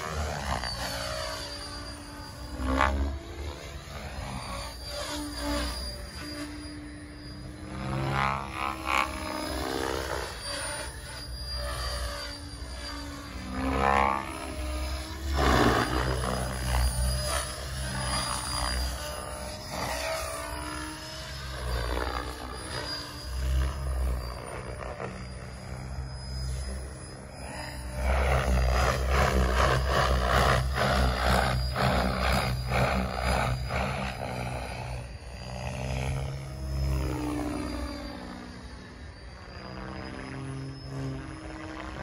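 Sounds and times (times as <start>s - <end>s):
model helicopter rotor whine: 0.0s - 42.0s.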